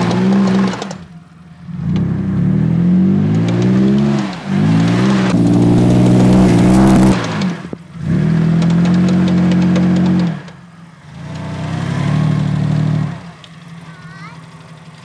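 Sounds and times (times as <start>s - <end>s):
car engine revving hard: 2.3s - 8.5s.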